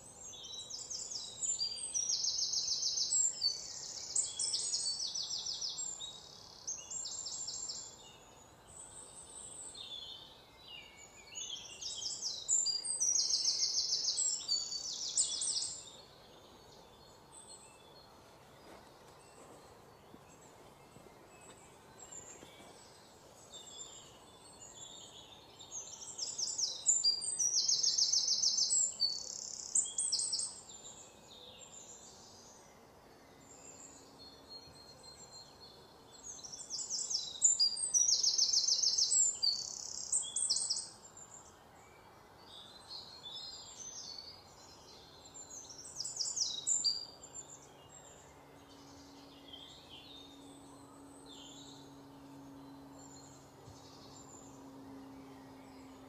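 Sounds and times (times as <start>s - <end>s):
birds singing trilled phrases: 0.0s - 18.0s, 23.6s - 32.7s, 33.4s - 41.6s
faint background hiss: 0.0s - 56.0s.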